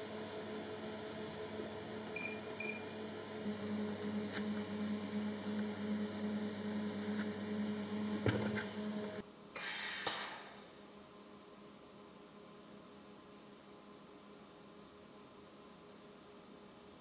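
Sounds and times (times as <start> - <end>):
welder humming: 3.4 - 9.2.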